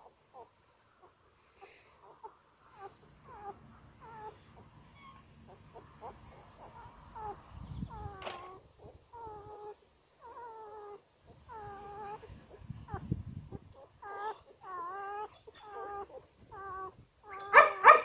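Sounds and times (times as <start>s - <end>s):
puppies crying in high squeals: 2.7s - 8.6s, 9.2s - 12.3s, 14.0s - 18.0s.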